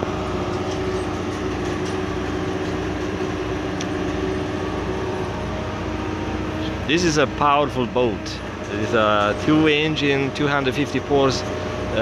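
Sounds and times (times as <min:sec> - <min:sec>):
crane mechanical drone: 0:00.0 - 0:12.0.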